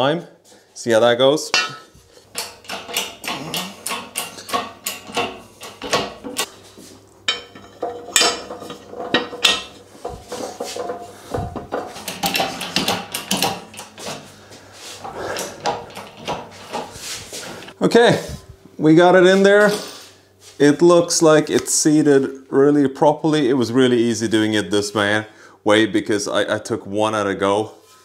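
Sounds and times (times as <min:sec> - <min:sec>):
steel parts clinking and knocking: 0:01.6 - 0:06.5, 0:07.3 - 0:14.2.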